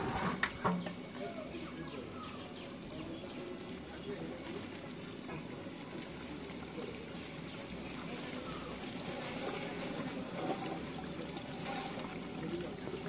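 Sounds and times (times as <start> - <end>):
curry bubbling in a pot: 0.1 - 13.0
ladle stirring: 4.4 - 13.0.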